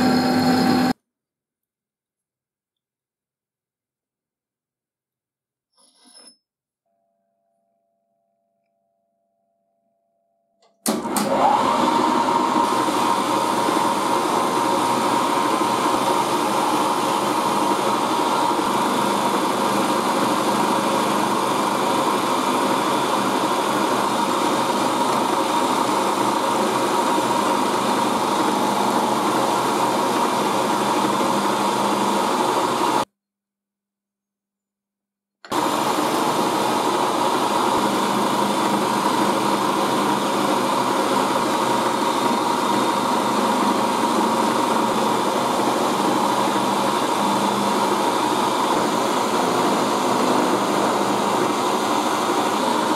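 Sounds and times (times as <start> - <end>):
milling machine cutting metal: 0.0 - 0.9, 10.9 - 33.0, 35.5 - 52.9.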